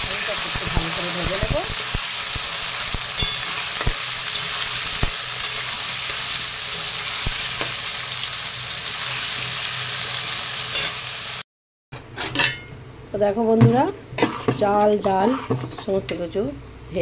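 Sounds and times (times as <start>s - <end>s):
potatoes sizzling in hot oil: 0.0s - 11.4s
spatula knocking and scraping pan: 13.5s - 16.2s.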